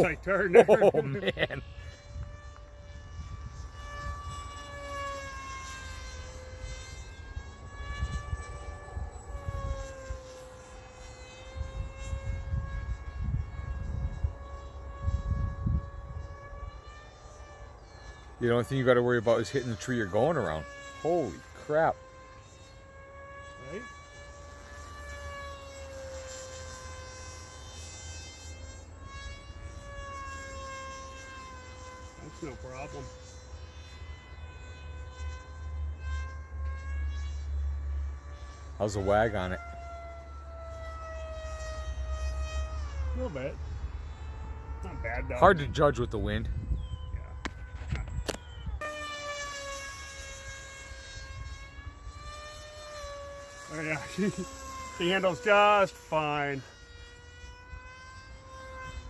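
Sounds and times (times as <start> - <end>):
electric motor and propeller whining: 0.0 - 59.0
wind rumbling on microphone: 1.2 - 5.0, 7.0 - 10.4, 11.6 - 16.9, 44.7 - 49.0.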